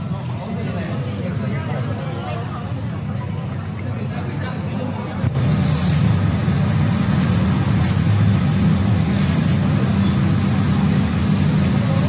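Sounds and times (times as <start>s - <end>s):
vehicle engine rumble: 5.1s - 12.0s.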